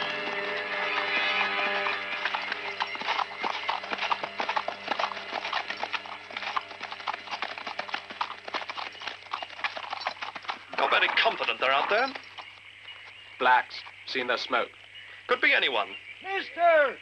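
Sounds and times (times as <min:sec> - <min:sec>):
background music: 0:00.0 - 0:08.8
horse hooves clopping: 0:00.0 - 0:15.0.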